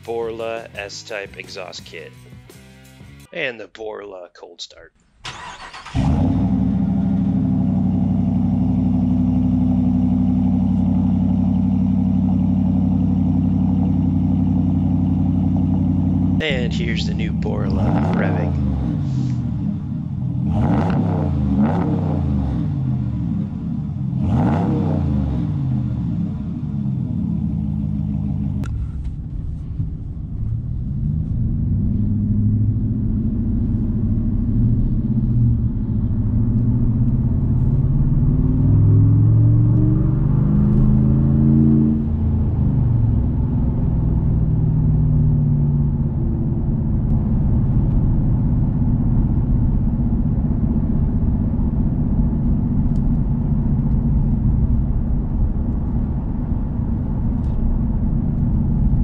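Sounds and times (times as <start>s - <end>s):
engine exhaust from inside cab: 6.0s - 59.0s.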